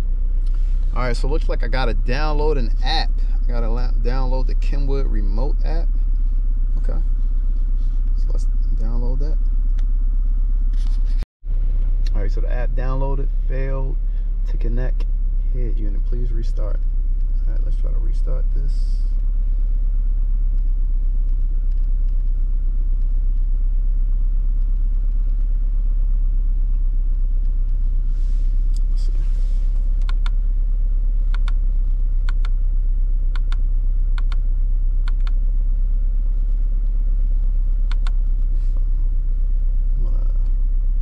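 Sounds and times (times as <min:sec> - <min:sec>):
car engine idling: 0:00.0 - 0:41.0
short double clicks: 0:32.2 - 0:32.6, 0:33.4 - 0:34.4, 0:37.8 - 0:38.2.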